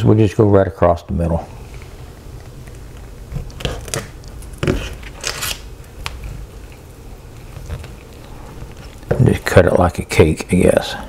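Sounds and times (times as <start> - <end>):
knife scraping through crust: 3.3 - 5.7.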